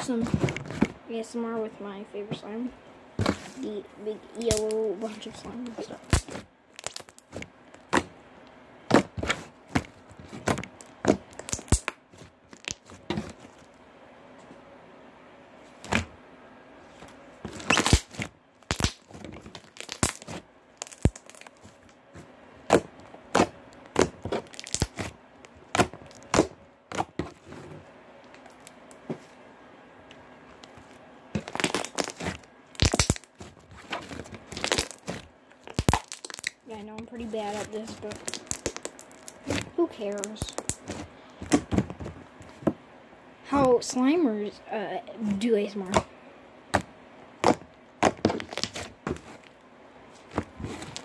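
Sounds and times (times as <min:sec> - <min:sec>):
slime squished by hand: 0:04.3 - 0:08.1, 0:17.5 - 0:21.7, 0:22.7 - 0:25.1, 0:31.4 - 0:41.8, 0:46.8 - 0:49.4.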